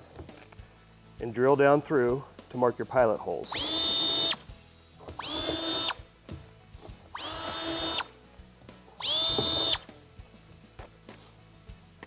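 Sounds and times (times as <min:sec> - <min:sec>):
power drill whining: 0:03.5 - 0:06.0, 0:07.1 - 0:08.2, 0:09.0 - 0:09.9.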